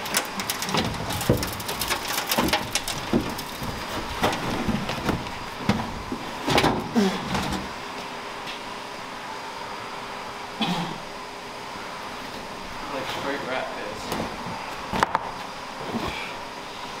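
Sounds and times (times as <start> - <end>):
dry debris crackling and pattering: 0.0 - 7.6.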